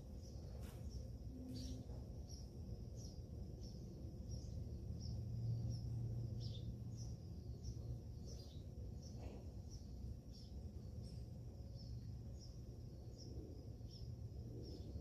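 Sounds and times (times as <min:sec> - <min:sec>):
low steady hum: 0:00.0 - 0:15.0
small bird chirping: 0:00.0 - 0:15.0.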